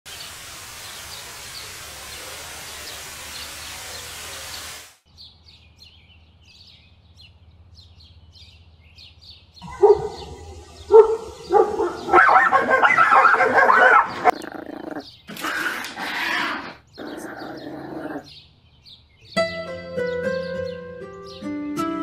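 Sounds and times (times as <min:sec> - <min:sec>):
waterfall rushing: 0:00.1 - 0:05.0, 0:09.6 - 0:14.3
birds chirping: 0:00.1 - 0:22.0
dog barking loudly: 0:09.6 - 0:14.4.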